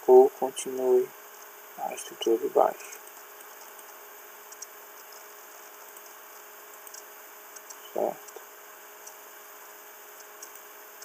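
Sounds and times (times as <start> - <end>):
faint microphone hiss: 0.0 - 11.0
computer mouse clicks: 2.9 - 8.4, 9.0 - 9.2, 10.1 - 11.0.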